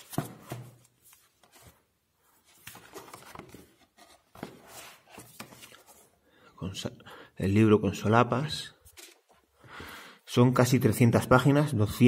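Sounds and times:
book pages rustling: 0.0s - 6.2s, 8.9s - 9.4s.

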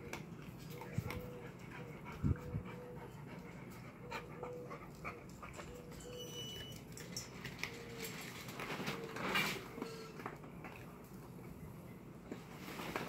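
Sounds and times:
dog panting: 0.7s - 5.9s.

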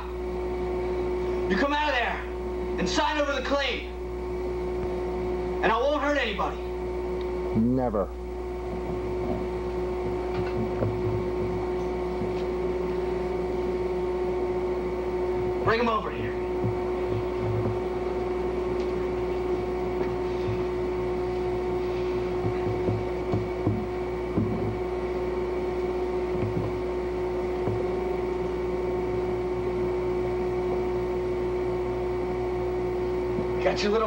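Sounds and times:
electrical hum and hiss: 0.0s - 34.0s
faint low thumps: 8.4s - 30.1s.

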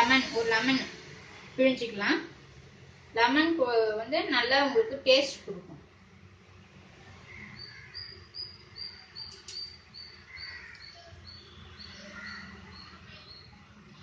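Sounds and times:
bird chirping: 7.3s - 14.0s.

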